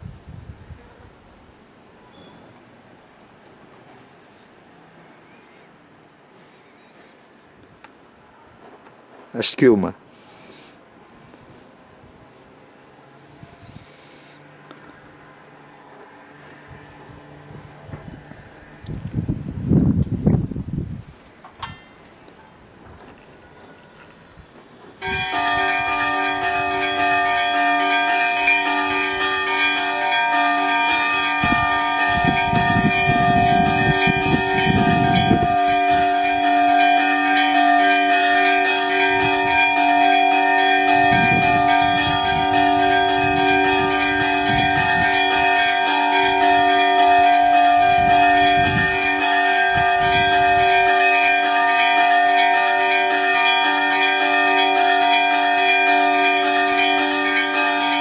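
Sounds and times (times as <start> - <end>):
church bells pealing: 25.0 - 58.0.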